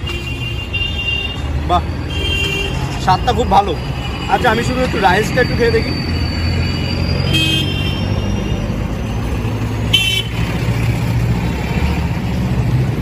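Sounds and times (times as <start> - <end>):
traffic engine hum: 0.0 - 13.0
vehicle horn toots: 7.3 - 8.6, 9.9 - 10.4.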